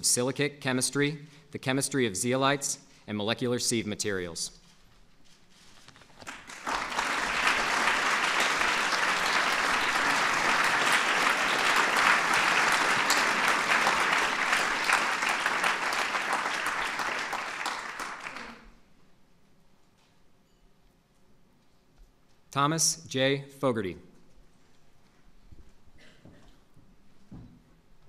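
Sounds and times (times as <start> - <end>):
audience applauding: 6.2 - 18.8.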